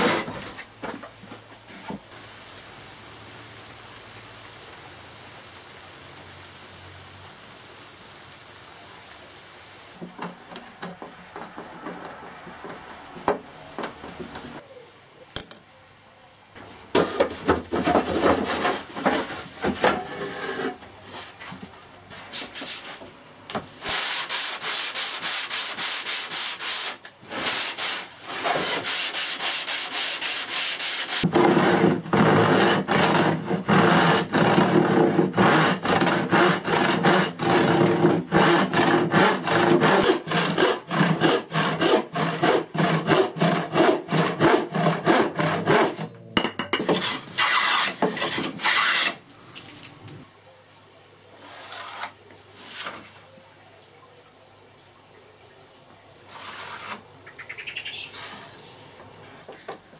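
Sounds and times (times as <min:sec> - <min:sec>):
handsaw cutting wood: 0:23.8 - 0:46.1, 0:46.8 - 0:49.2, 0:56.3 - 0:57.0.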